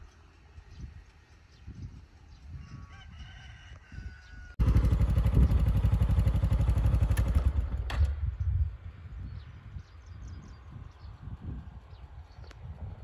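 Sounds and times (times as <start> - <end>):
engine running loudly: 4.6 - 8.2.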